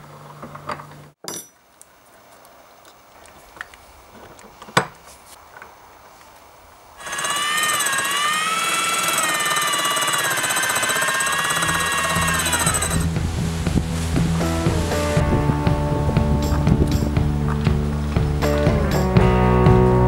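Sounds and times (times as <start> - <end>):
electric drill whining: 7.0 - 13.1.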